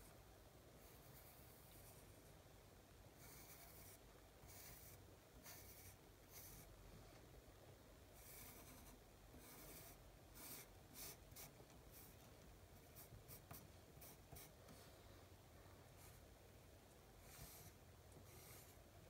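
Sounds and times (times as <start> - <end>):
pencil sketching on paper: 0.8 - 2.1, 3.2 - 6.7, 8.2 - 12.2, 12.8 - 14.9, 17.2 - 18.9.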